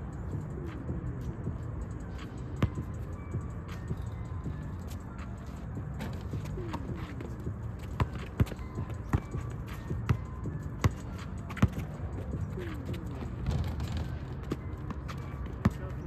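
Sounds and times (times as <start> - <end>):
steady background noise: 0.0 - 16.0
basketball bouncing on a court: 2.6 - 3.0, 5.9 - 16.0.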